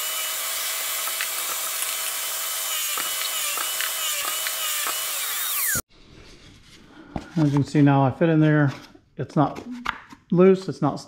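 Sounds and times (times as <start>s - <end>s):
table saw cutting wood: 0.0s - 5.9s.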